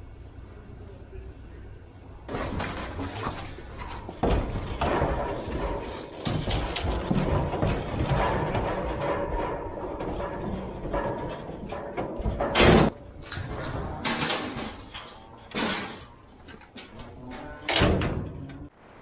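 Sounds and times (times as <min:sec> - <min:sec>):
gate swung shut: 0:02.3 - 0:16.2, 0:17.3 - 0:18.6
metal bangs and crashes: 0:02.3 - 0:18.7.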